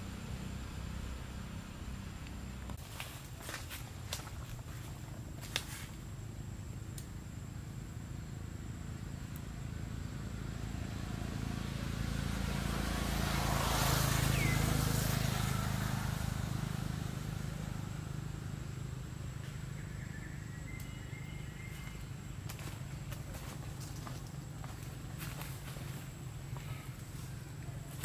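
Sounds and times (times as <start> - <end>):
motor vehicle passing by: 0.0 - 4.5, 8.4 - 28.0.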